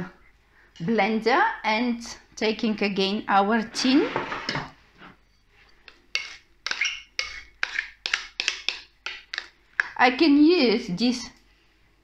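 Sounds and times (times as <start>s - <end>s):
spatula scraping bowl: 3.6s - 9.5s.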